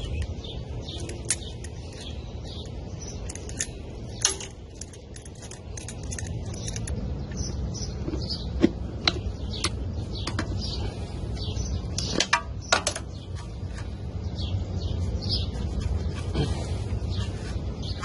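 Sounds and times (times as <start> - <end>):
birds chirping: 0.0 - 18.0
steady low rumble: 0.0 - 18.0
hand tools clinking on metal: 0.9 - 7.0.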